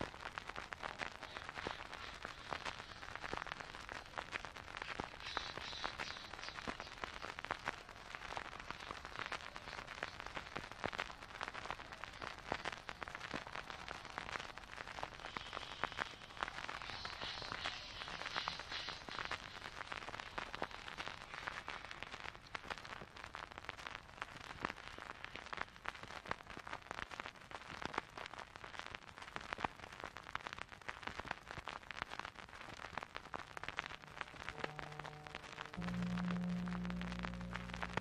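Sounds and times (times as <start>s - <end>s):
crackling dark ambient music: 0.0s - 23.1s, 33.2s - 38.0s.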